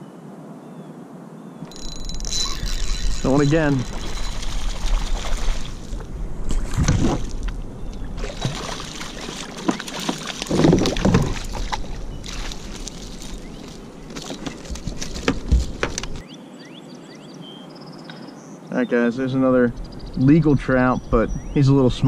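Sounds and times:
water sloshing around hull: 2.6 - 16.2
fish splashing at water surface: 3.9 - 6.0, 8.2 - 14.4.

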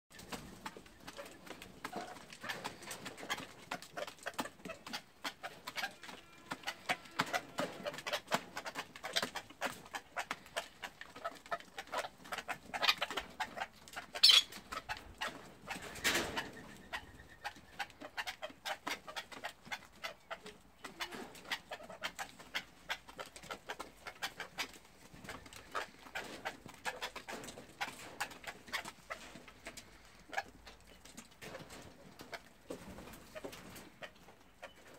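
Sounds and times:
soft bird calls: 14.1 - 19.4.

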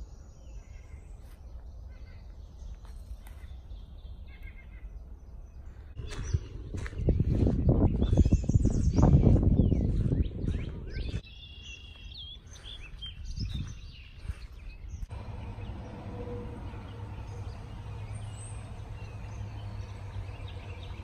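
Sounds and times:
small birds chirping: 0.0 - 21.0
steady outdoor noise: 0.0 - 21.0
low hum: 14.9 - 21.0.

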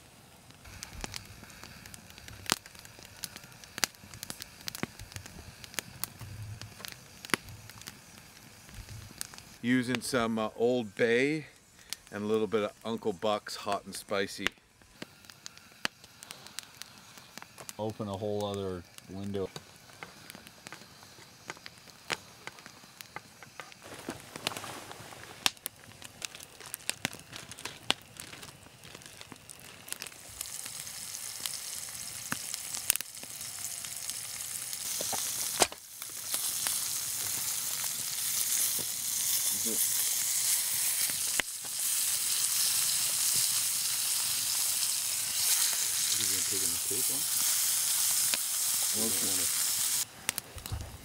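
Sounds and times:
sharp clicks and crackles: 14.4 - 34.2, 34.8 - 43.7
fish frying in oil: 25.4 - 50.1.

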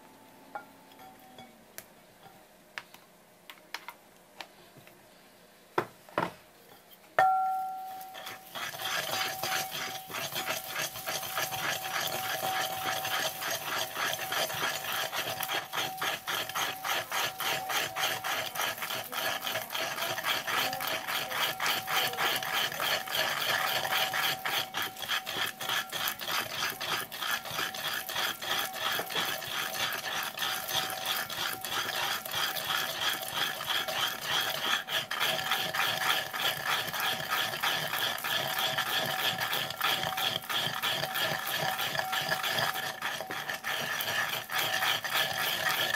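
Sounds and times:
knock on ceramic bowl ringing: 7.2 - 8.2
pestle scraping in ridged bowl: 7.5 - 45.9.

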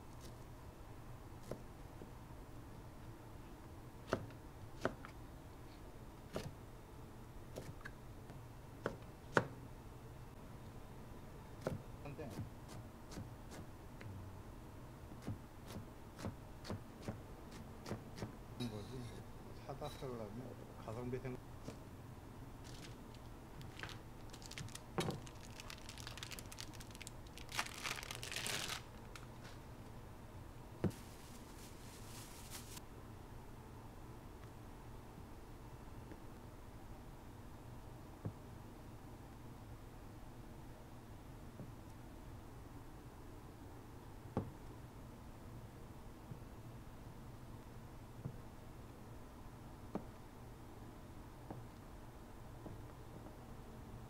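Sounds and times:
knife chopping on cutting board: 17.8 - 18.3
crinkling and rustling: 22.6 - 29.6, 30.9 - 32.8.

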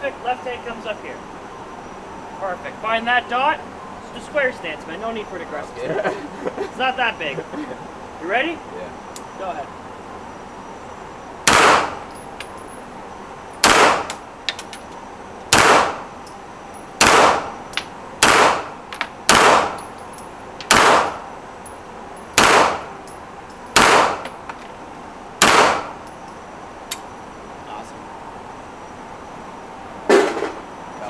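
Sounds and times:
carbine gunshots echoing indoors: 11.4 - 12.0, 13.6 - 14.2, 15.5 - 16.0, 17.0 - 17.6, 18.2 - 18.7, 19.3 - 19.8, 22.4 - 22.9, 23.8 - 24.3, 25.4 - 26.0.

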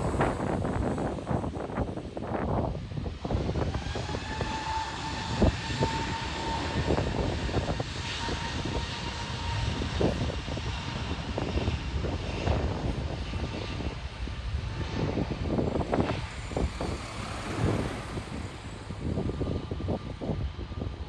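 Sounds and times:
jet engines rumbling: 0.0 - 21.0
thin engine whine: 0.0 - 21.0
wind buffeting microphone: 0.0 - 21.0.

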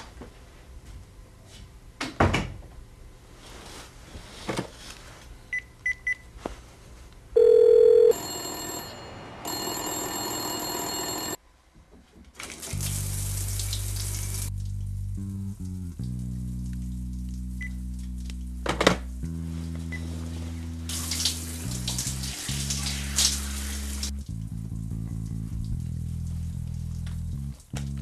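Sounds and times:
loud steady phone tone: 7.4 - 11.4.

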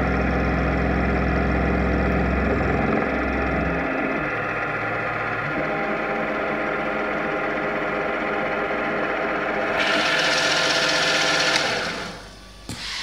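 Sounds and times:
hissing metal cutting noise: 11.5 - 13.0.

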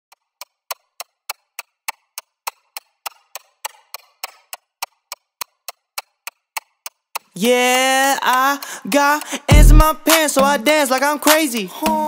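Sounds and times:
sharp percussion ticks: 8.2 - 12.0.

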